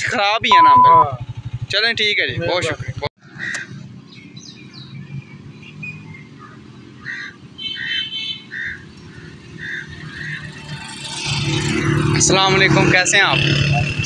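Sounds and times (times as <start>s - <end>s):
birds chirping: 3.2s - 10.8s.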